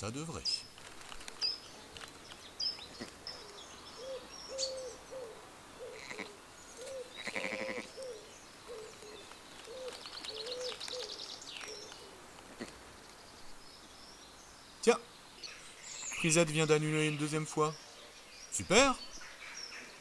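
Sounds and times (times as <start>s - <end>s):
small songbirds chirping: 0.0s - 20.0s
bird cooing: 3.3s - 12.2s.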